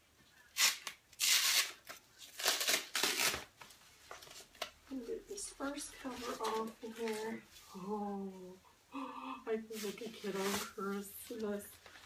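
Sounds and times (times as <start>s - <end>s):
tape being peeled: 0.5s - 4.7s
plastic packaging rustling and tearing: 0.5s - 4.8s.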